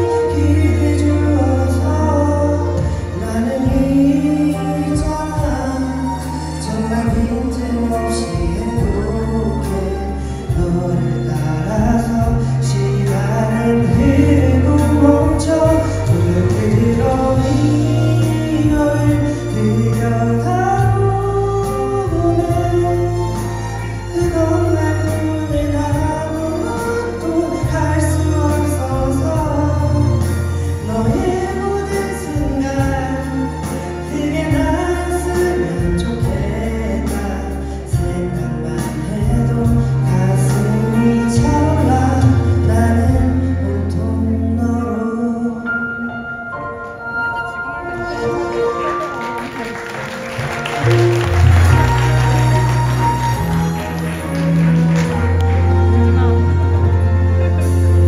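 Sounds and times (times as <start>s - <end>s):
man singing a ballad: 0.0s - 48.8s
musical accompaniment with bass: 0.0s - 58.0s.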